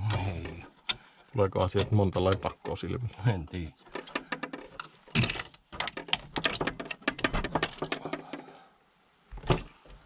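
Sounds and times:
clatter of small knocks: 3.8s - 8.6s.

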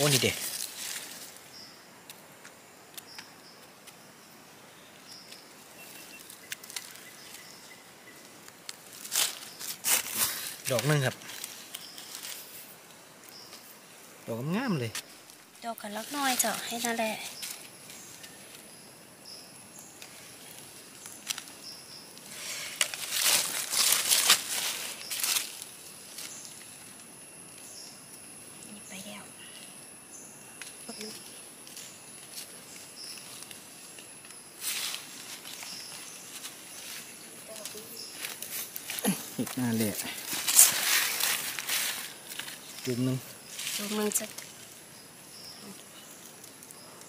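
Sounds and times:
dry leaves rustling: 0.0s - 1.5s, 5.2s - 13.7s, 15.0s - 18.8s, 19.8s - 27.0s, 30.9s - 47.0s
faint steady hiss: 0.0s - 47.0s.

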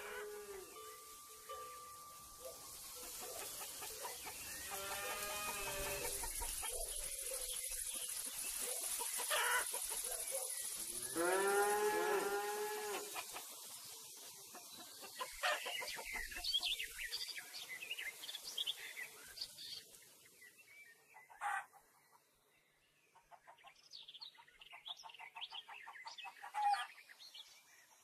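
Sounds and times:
chickens clucking: 0.0s - 10.8s, 12.9s - 17.0s, 21.2s - 21.9s
small birds chirping: 0.0s - 11.7s, 12.9s - 28.0s
insect buzz: 2.6s - 13.9s
cow mooing: 11.1s - 13.1s.

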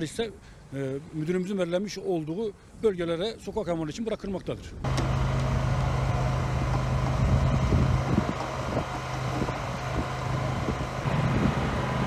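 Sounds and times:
low motor hum: 4.8s - 12.0s
wind noise on microphone: 6.5s - 12.0s.

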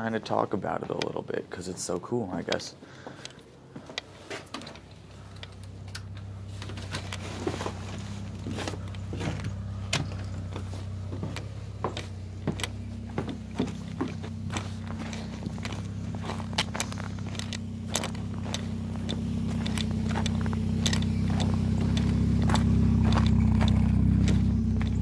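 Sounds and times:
footsteps: 2.4s - 25.0s
steady low drone: 5.0s - 25.0s
footsteps on snow: 6.4s - 25.0s.

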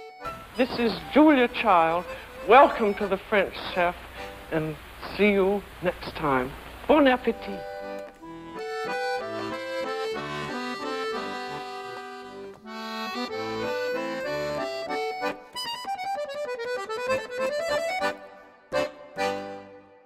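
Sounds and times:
instrumental music: 0.0s - 4.6s, 7.2s - 20.0s.

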